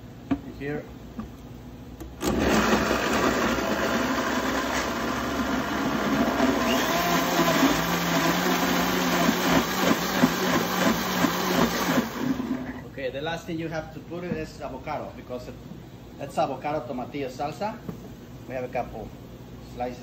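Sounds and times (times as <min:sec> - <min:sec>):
blender motor running: 0:02.2 - 0:12.8.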